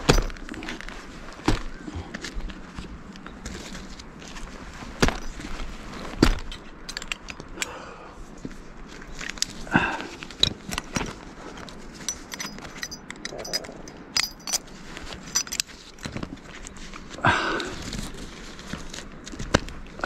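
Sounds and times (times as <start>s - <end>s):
twigs and leaves rustling: 0.0s - 7.6s, 8.3s - 20.0s
small metallic clinks: 6.4s - 7.7s, 10.4s - 16.2s.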